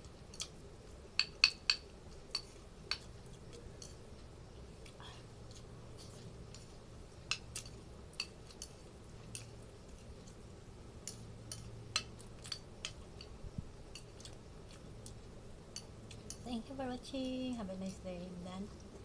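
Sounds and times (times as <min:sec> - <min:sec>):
chewing: 0:02.1 - 0:16.5.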